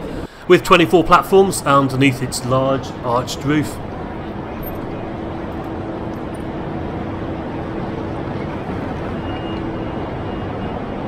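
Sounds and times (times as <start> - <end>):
trains at platforms: 0.0 - 11.0
people moving about: 3.6 - 10.4.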